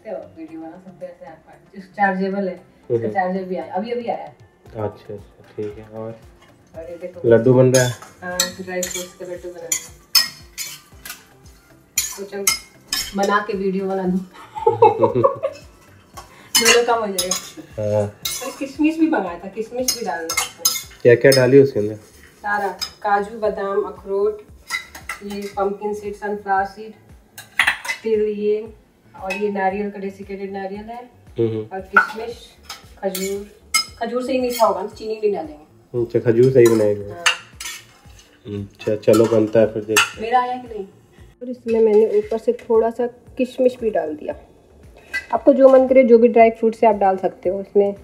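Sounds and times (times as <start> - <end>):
metal clinking on metal: 7.7 - 11.4, 12.0 - 13.4, 15.6 - 18.8, 19.8 - 21.5, 32.1 - 34.8, 36.4 - 38.4
spoon scraping nuts in a pan: 7.7 - 13.5, 15.6 - 18.8, 19.6 - 23.4, 24.4 - 25.8, 32.0 - 34.9, 36.4 - 40.2.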